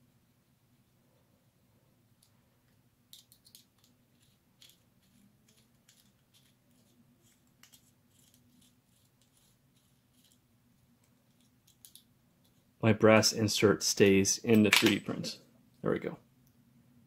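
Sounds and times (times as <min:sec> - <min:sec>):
small metallic clicks and ticks: 0:11.0 - 0:12.6.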